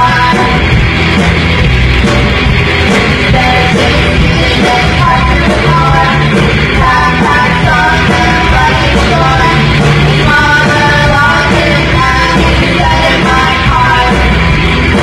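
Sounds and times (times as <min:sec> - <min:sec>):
punk rock band playing live: 0:00.0 - 0:15.0.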